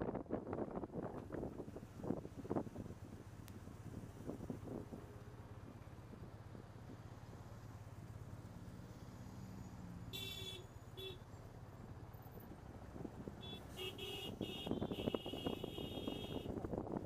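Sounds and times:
car horns honking: 0:10.1 - 0:11.2, 0:13.4 - 0:16.6
wind buffeting microphone: 0:14.4 - 0:17.0.

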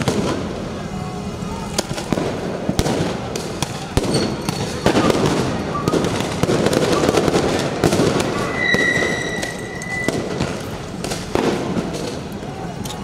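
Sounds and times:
firecrackers popping and cracking: 0:00.0 - 0:00.9, 0:01.6 - 0:13.0
street din: 0:00.0 - 0:13.0
shrill whistle tone: 0:08.3 - 0:10.4.

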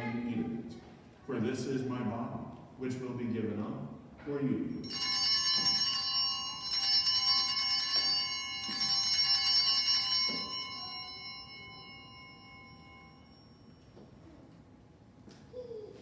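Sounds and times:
altar bells chiming: 0:04.7 - 0:14.2.

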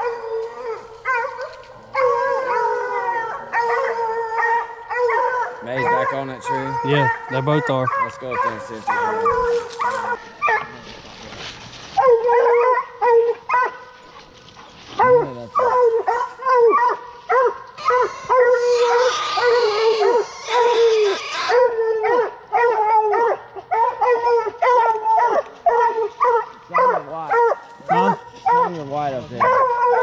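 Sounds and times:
dogs barking: 0:00.0 - 0:11.1, 0:11.9 - 0:30.0
rustling: 0:08.4 - 0:12.6, 0:13.5 - 0:16.4.

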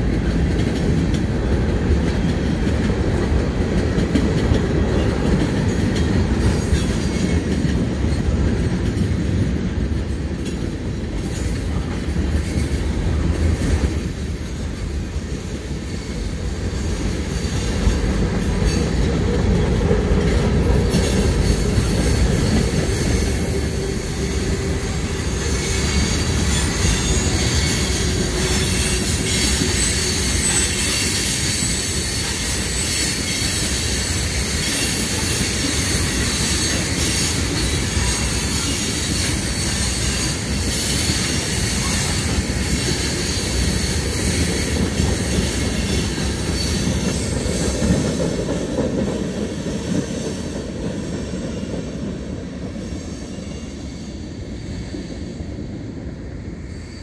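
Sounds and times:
high wheel squeal: 0:05.0 - 0:11.8, 0:13.7 - 0:19.0, 0:20.9 - 0:48.1.

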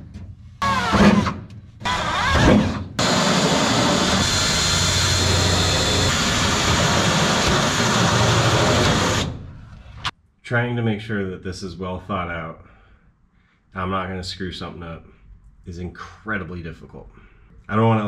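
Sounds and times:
cordless drill drilling through metal: 0:01.9 - 0:09.4.

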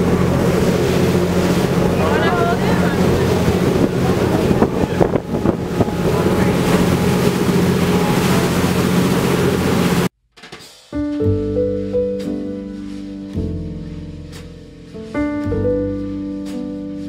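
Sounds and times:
boat engine humming: 0:00.0 - 0:10.1
water rushing from wake: 0:00.0 - 0:10.1
wind buffeting microphone: 0:00.0 - 0:10.1
music with held notes: 0:10.5 - 0:17.0.

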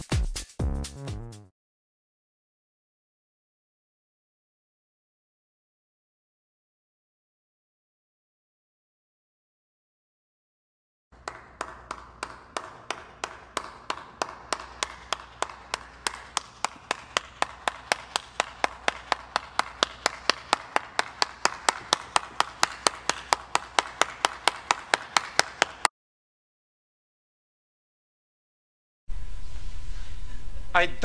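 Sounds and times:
person clapping hands: 0:11.2 - 0:25.9.

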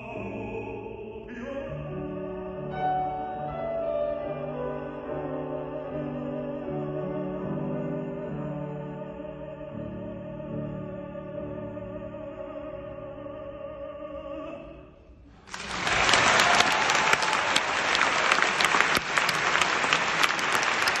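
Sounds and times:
grand piano: 0:00.0 - 0:21.0
audience applause: 0:15.4 - 0:21.0.

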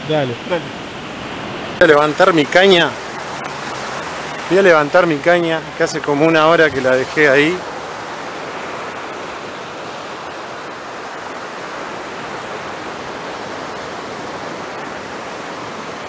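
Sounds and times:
ocean surf breaking on beach: 0:00.0 - 0:16.0.

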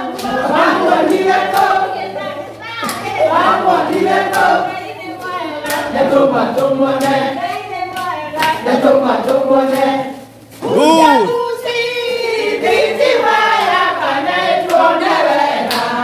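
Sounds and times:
group of people singing: 0:00.0 - 0:16.0
handclaps: 0:02.8 - 0:03.2, 0:03.8 - 0:04.6, 0:05.2 - 0:08.6, 0:14.6 - 0:14.9, 0:15.6 - 0:16.0.

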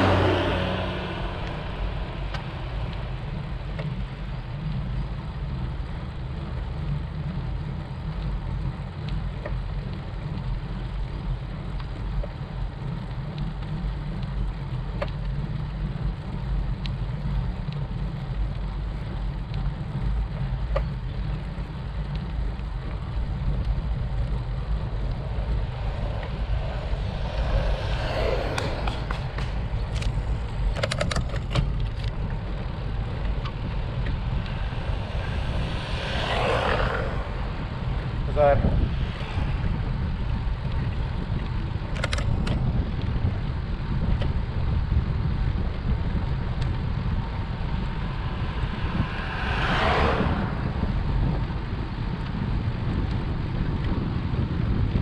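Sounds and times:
car passing: 0:00.0 - 0:05.7, 0:21.4 - 0:43.9, 0:44.6 - 0:53.4
wind rumble on microphone: 0:00.0 - 0:55.0
faint bicycle clicks: 0:02.3 - 0:38.1, 0:39.1 - 0:48.2, 0:51.2 - 0:55.0.

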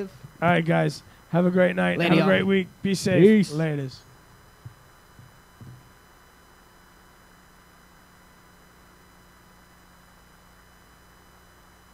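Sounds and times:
steady low hiss: 0:00.0 - 0:10.8
faint electrical hum: 0:00.0 - 0:11.9.

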